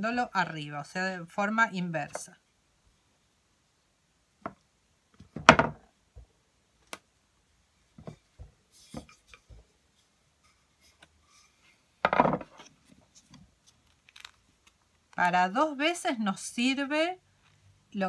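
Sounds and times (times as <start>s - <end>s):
wooden rolling pin knocks: 5.2s - 6.3s, 12.0s - 12.6s.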